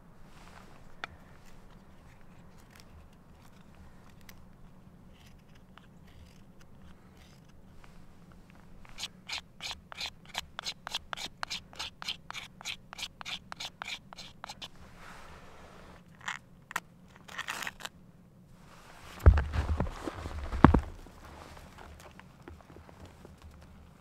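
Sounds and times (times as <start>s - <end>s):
knife carving wooden stick: 5.1s - 7.6s, 8.8s - 14.8s.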